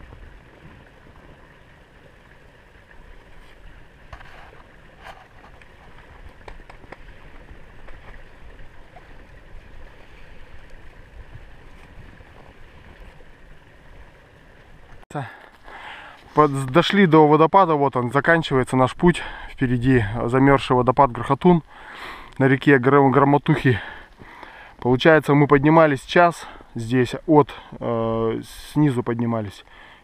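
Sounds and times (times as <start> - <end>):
stream rushing: 0.0 - 17.8.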